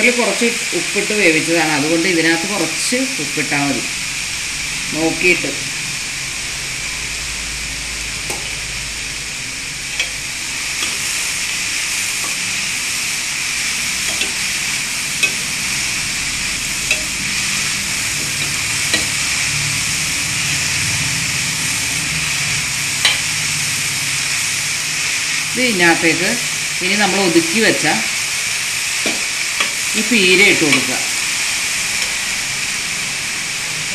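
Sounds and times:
vegetables sizzling in oil: 0.0s - 33.9s
spoon clinking against pan: 14.0s - 14.6s, 15.2s - 15.6s, 16.9s - 17.3s, 18.2s - 19.2s.

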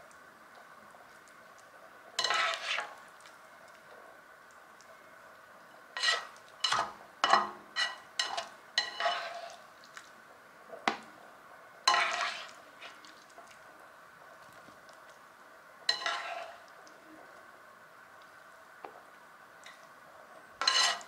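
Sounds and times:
spatula scraping a pot and plate: 2.2s - 3.0s, 6.0s - 9.7s, 11.9s - 13.0s, 15.9s - 16.7s, 20.6s - 21.0s.

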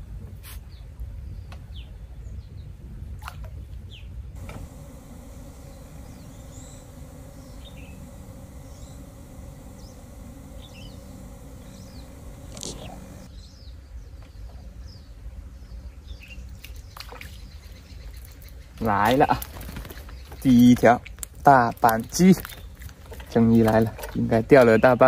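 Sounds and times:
faint steady hum: 4.3s - 13.3s
low steady rumble: 4.3s - 13.3s
bird chirps: 4.4s - 13.7s.

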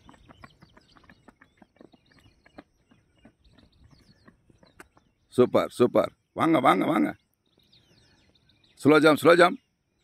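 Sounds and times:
running footsteps on rock: 0.0s - 5.3s
faint bird chirps: 0.0s - 10.0s.

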